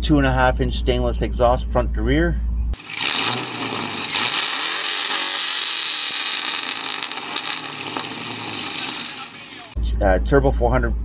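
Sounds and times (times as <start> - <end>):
engine running through exhaust: 2.7 - 9.8.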